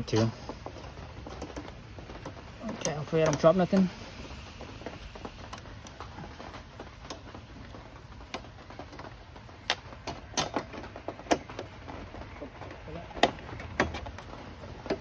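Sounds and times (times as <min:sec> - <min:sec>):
small parts clicking and tapping: 0:00.1 - 0:03.9.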